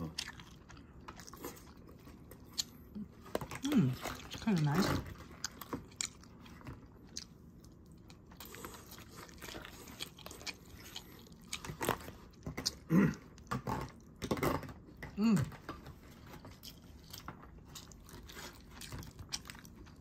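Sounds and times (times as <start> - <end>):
chewing food: 0.0 - 20.0
person humming mm: 15.2 - 15.6.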